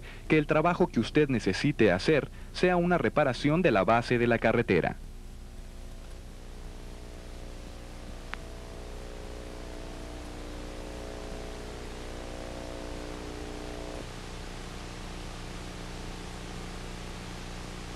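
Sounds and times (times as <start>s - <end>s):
low electrical hum: 0.0s - 17.9s
tape hiss: 0.0s - 17.9s
click: 5.9s - 6.2s, 8.3s - 8.5s.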